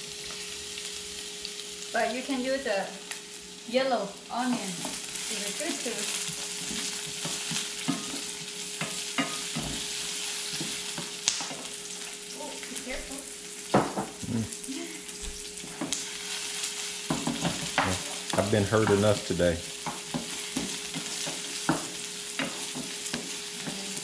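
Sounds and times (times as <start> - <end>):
onion sizzling in oil: 0.0 - 24.0
spatula scraping a pan: 19.8 - 24.0.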